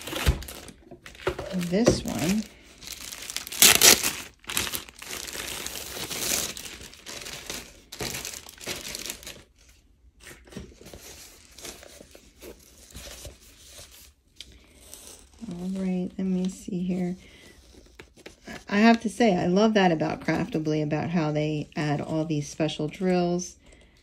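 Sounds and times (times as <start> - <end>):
plastic wrapping crinkling: 0.0 - 9.7.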